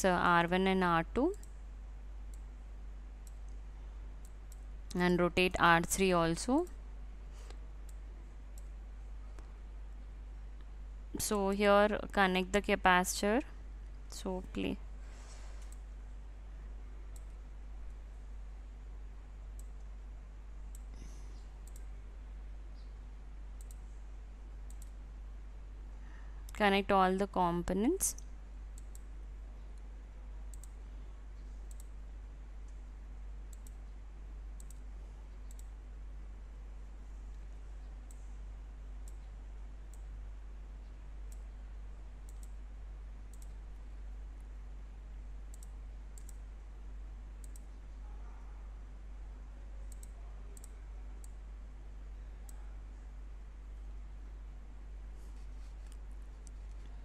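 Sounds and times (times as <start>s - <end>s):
low electrical hum: 0.0s - 57.0s
computer mouse clicking: 21.6s - 21.9s, 23.6s - 23.9s, 24.7s - 25.0s, 28.1s - 29.1s, 30.5s - 30.8s, 31.6s - 32.0s, 33.5s - 34.0s, 34.6s - 35.7s, 42.2s - 42.6s, 43.3s - 43.8s, 45.5s - 46.4s, 47.4s - 47.8s, 49.9s - 51.4s.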